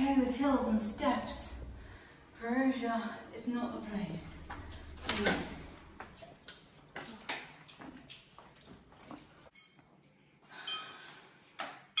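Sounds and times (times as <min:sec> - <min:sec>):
footsteps: 0:04.2 - 0:09.6.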